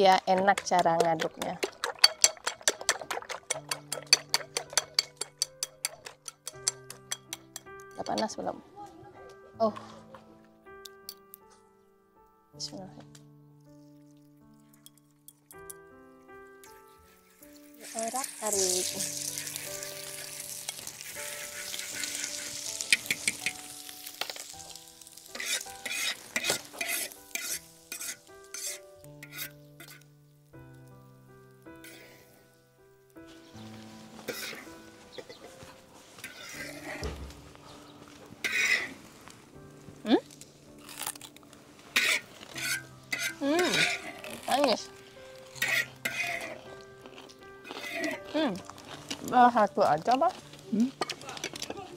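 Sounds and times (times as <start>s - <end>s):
egg sizzling in hot oil: 0.1s - 7.7s, 17.1s - 30.1s, 36.2s - 37.2s, 38.4s - 39.0s, 40.8s - 46.6s
metal spatula scraping wok: 17.5s - 30.0s, 33.7s - 37.3s, 38.4s - 39.1s, 41.8s - 49.3s.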